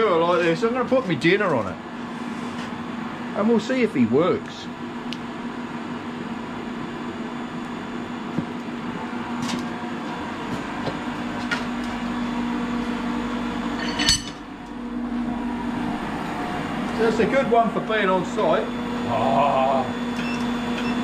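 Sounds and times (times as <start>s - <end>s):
electrical hum of heater: 0.0s - 21.0s
sharp metal clank: 13.8s - 14.4s.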